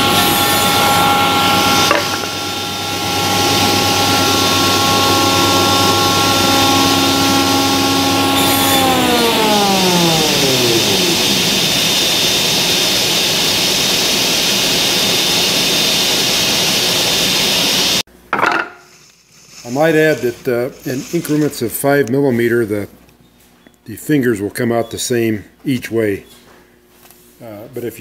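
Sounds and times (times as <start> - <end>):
spindle shaper hum winding down: 0.0 - 18.0.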